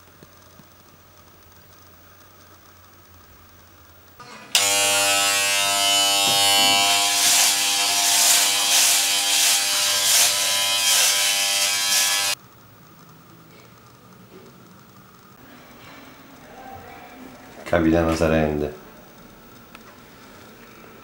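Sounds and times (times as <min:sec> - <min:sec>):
electric razor buzzing: 0:04.2 - 0:12.4.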